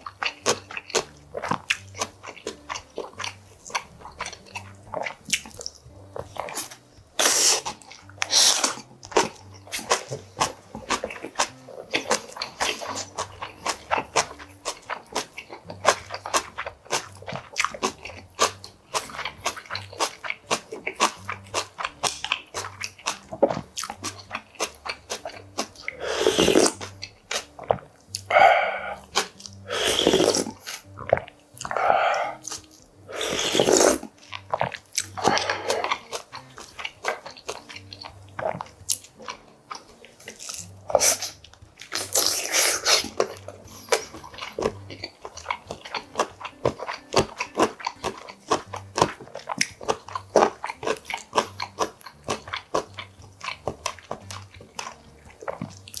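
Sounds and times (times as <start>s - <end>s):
wet chewing: 0.0s - 56.0s
loud slurping of broth: 7.2s - 8.8s, 25.9s - 26.8s, 28.3s - 29.0s, 29.7s - 30.8s, 31.7s - 32.4s, 33.1s - 34.0s, 42.0s - 43.2s.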